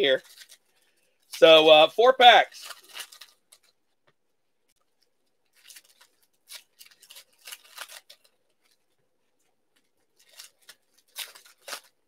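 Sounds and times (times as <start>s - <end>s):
foil wrapper crinkling: 0.0s - 4.0s, 4.6s - 12.0s.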